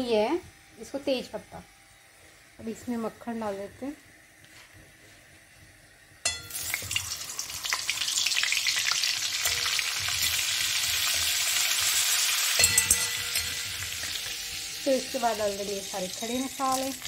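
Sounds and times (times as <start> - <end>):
butter sizzling in hot oil: 6.2 - 17.0.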